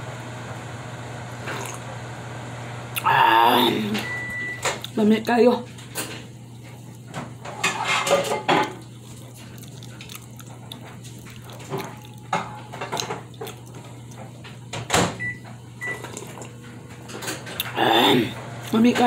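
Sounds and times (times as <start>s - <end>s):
low appliance hum: 0.0s - 19.0s
chewing and lip-smacking: 4.7s - 5.3s, 8.8s - 14.6s, 15.9s - 16.6s.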